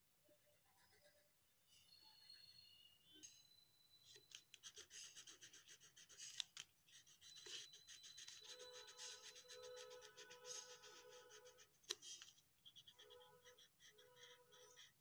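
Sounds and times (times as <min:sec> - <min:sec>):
crayon scratching on paper: 0:04.4 - 0:15.0.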